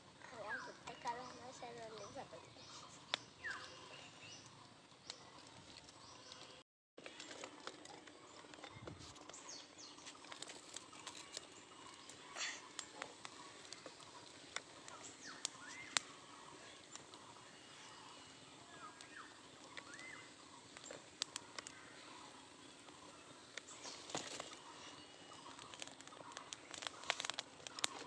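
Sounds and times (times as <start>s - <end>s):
fire crackling: 0.0s - 28.0s
faint bird chirps: 0.2s - 6.6s, 8.1s - 28.0s.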